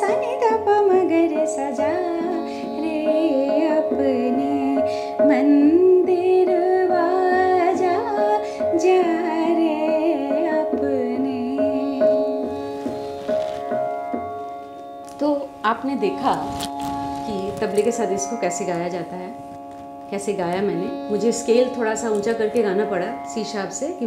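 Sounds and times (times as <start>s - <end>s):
woman singing: 0.0s - 12.6s, 17.3s - 19.4s, 20.2s - 24.0s
tabla playing: 0.0s - 24.0s
tanpura drone: 0.0s - 24.0s.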